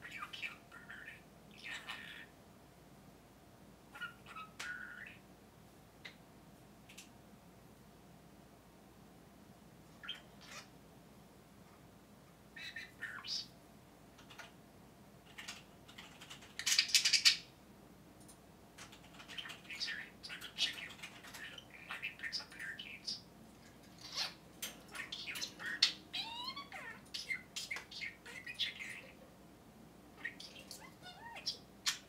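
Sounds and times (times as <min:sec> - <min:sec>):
bird chirps: 0:03.9 - 0:05.2, 0:12.6 - 0:13.5, 0:19.1 - 0:23.3, 0:24.0 - 0:29.2, 0:30.2 - 0:32.0
budgerigar mimicking speech: 0:30.2 - 0:32.0.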